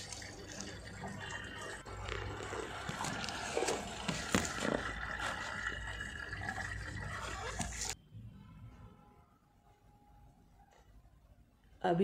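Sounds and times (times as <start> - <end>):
washing machine filling with water: 0.0 - 8.0
water gurgling into drum: 0.0 - 8.0
water sloshing: 0.0 - 8.0.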